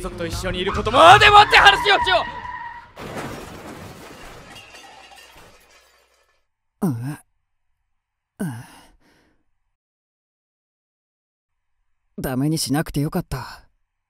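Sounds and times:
car crash noise: 1.6s - 6.4s
man groaning: 6.8s - 7.2s, 8.4s - 8.9s.

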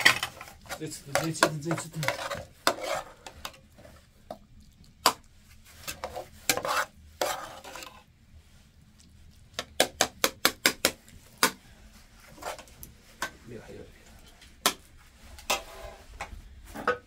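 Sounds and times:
metal ladle scraping a pot: 0.0s - 3.9s, 5.8s - 8.1s.

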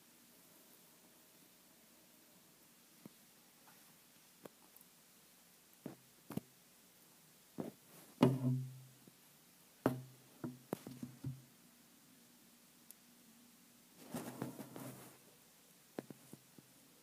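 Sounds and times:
knocks on hard surface: 8.2s - 8.7s, 9.9s - 11.4s.

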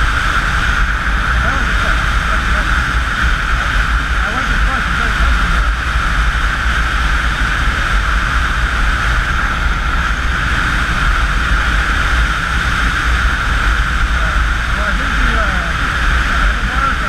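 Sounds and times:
motorcycle engine drone: 0.0s - 17.0s
wind rumble on microphone: 0.0s - 17.0s.

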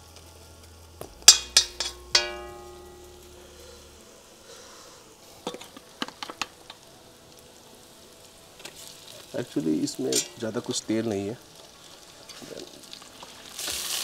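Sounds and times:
onions sizzling in pan: 0.0s - 14.0s
spoon clinking on steel bowl: 1.3s - 3.1s, 10.1s - 10.4s
metal utensil clanging: 1.3s - 3.8s, 9.9s - 10.6s.

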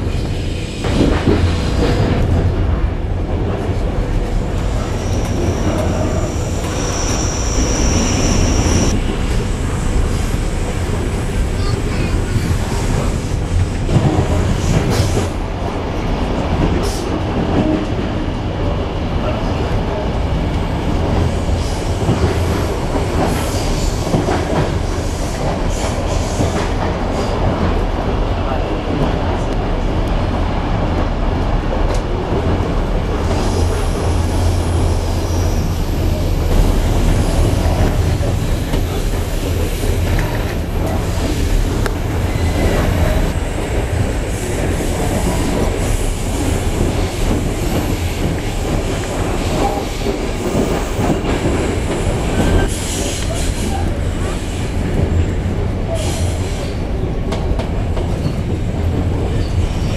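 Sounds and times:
train wheels rolling and humming: 0.0s - 59.9s
wheels squealing on rail: 4.7s - 9.0s, 42.1s - 54.8s.

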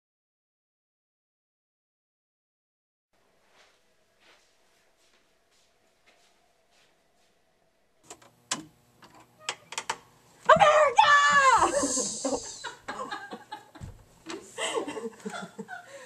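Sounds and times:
closet doors clicking and knocking: 8.1s - 11.8s, 13.7s - 14.4s
woman screaming: 10.5s - 12.8s
woman laughing breathlessly: 11.6s - 16.0s.

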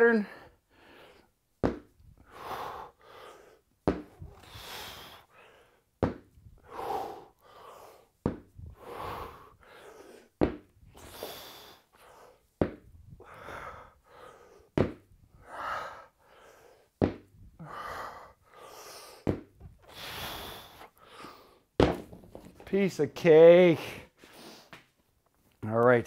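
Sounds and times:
kettlebells thunking on floor: 1.6s - 1.9s, 3.8s - 4.2s, 6.0s - 6.3s, 8.2s - 8.5s, 10.4s - 10.7s, 12.6s - 12.9s, 14.8s - 15.1s, 17.0s - 17.3s, 19.2s - 19.6s, 21.8s - 22.6s
heavy breathing and exhales: 6.5s - 12.4s, 15.4s - 21.7s.

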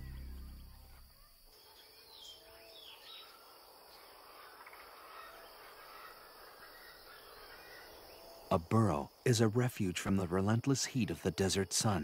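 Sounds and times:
faint bird chirps: 0.0s - 8.6s
insects and crickets: 0.0s - 12.0s.

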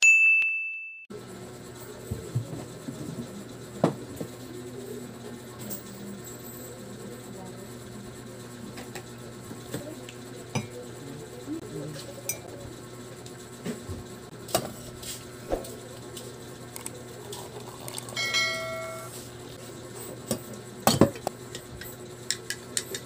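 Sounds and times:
hot water pouring into glass: 16.8s - 19.1s
brief ringing tone: 18.2s - 19.1s.

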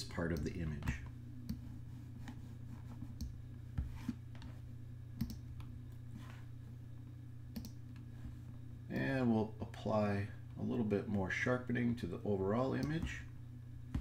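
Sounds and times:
steady low hum: 0.0s - 14.0s
computer mouse clicks: 5.2s - 5.7s, 7.5s - 7.8s.

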